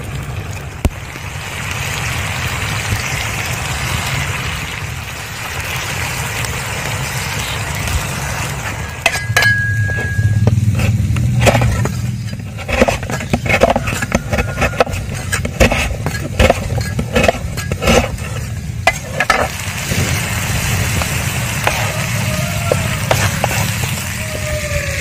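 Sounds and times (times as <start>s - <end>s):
steady low rumble: 0.0s - 25.0s
knife cutting on wooden board: 10.7s - 18.3s.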